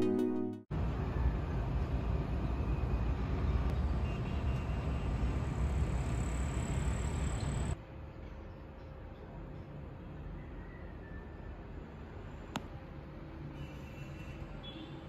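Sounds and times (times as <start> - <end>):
soft background music: 0.0 - 0.7
distant city traffic hum: 0.7 - 15.0.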